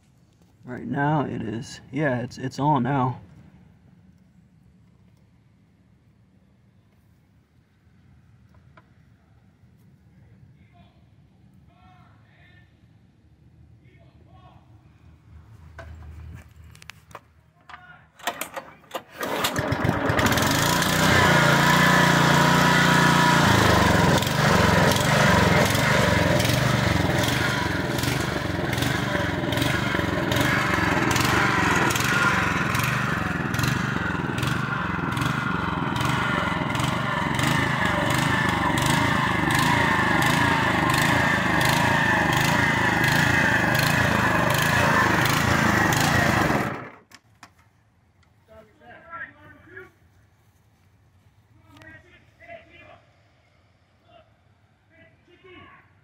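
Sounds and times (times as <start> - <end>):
pull cord pulls: 17.1 - 21.1
lawn mower engine running: 18.2 - 47.2.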